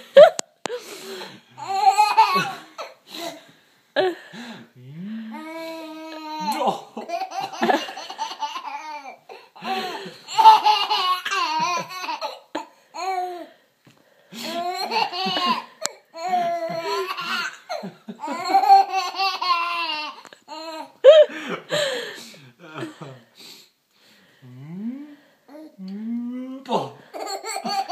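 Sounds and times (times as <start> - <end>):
baby laughing: 1.6 - 3.0, 5.8 - 13.2, 14.4 - 21.2, 27.1 - 27.9.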